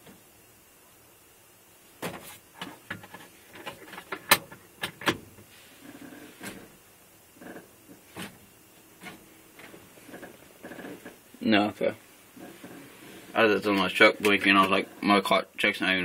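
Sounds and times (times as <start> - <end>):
low steady hiss: 0.0 - 16.0.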